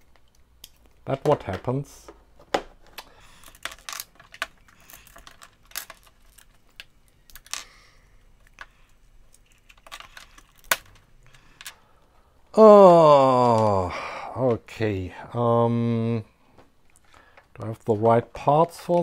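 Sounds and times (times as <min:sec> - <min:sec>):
plastic parts clicking: 0:00.0 - 0:07.8, 0:08.4 - 0:11.8.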